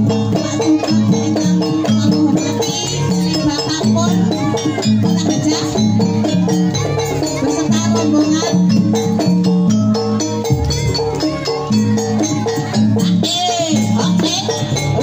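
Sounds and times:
drumming: 0:00.0 - 0:15.0
tuned metal percussion melody: 0:00.0 - 0:15.0.

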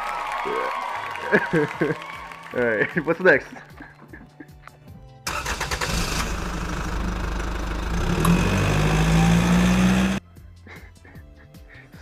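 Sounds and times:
car engine starting and revving: 0:05.3 - 0:10.2.

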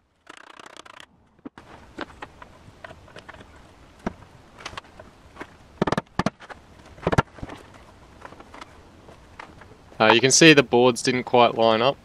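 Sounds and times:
sharp wooden knocks: 0:03.2 - 0:08.6.

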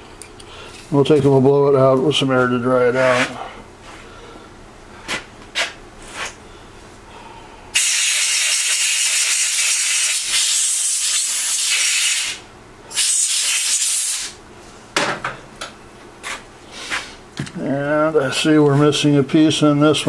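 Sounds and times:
compressed air hissing: 0:07.8 - 0:14.4.

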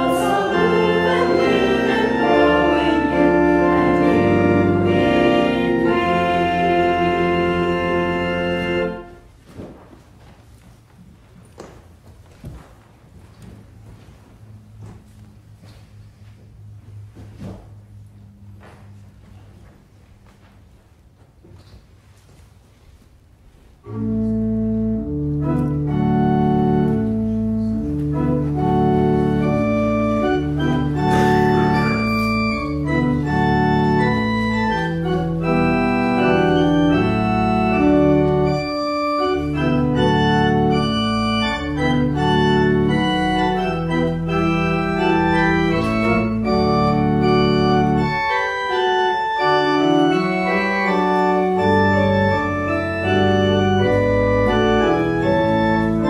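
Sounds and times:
deep organ bass line: 0:00.0 - 0:09.2, 0:24.0 - 0:56.0
organ chords: 0:00.0 - 0:09.4, 0:23.8 - 0:56.0.

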